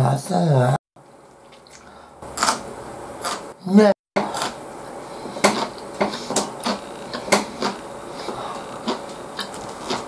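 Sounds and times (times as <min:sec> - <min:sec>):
chewing food: 0:05.4 - 0:10.0.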